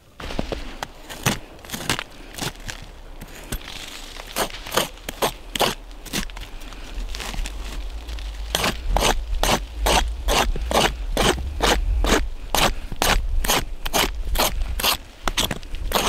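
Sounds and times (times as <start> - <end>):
knife blade scraping wood: 8.5 - 16.0.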